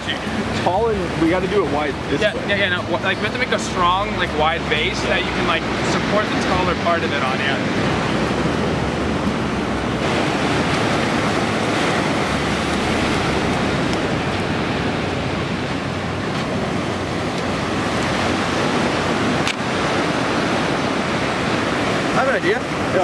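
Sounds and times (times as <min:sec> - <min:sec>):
ocean surf on sand: 0:00.0 - 0:23.0
wind rumbling on microphone: 0:04.8 - 0:23.0.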